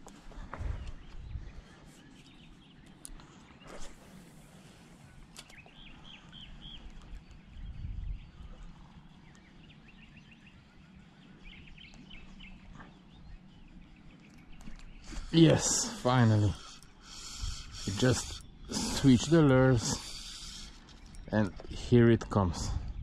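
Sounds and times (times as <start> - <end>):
small birds chirping: 0.0 - 23.0.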